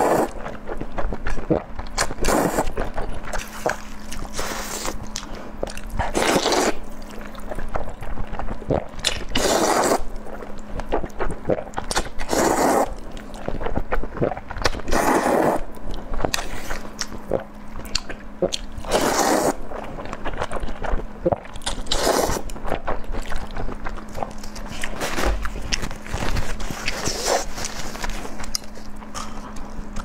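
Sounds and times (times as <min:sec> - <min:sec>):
slurping noodles: 0:00.0 - 0:00.4, 0:01.5 - 0:05.0, 0:06.0 - 0:06.9, 0:08.7 - 0:10.1, 0:11.5 - 0:13.0, 0:14.2 - 0:15.7, 0:18.8 - 0:19.6, 0:21.9 - 0:22.5, 0:26.4 - 0:28.4
wet chewing: 0:00.0 - 0:30.0.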